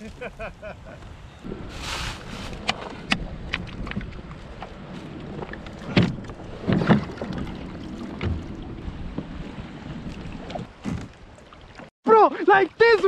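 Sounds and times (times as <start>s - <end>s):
wind buffeting microphone: 0.9s - 10.7s.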